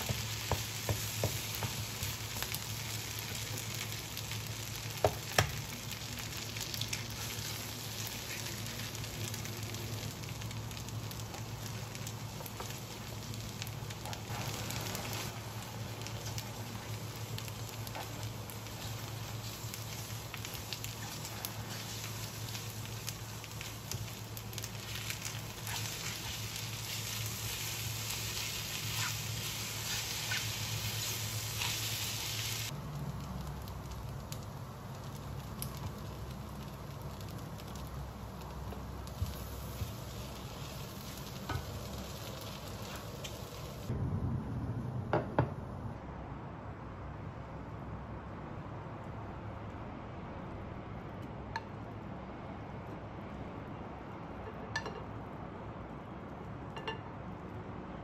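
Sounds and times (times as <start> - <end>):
food sizzling in frying pan: 0.0 - 43.9.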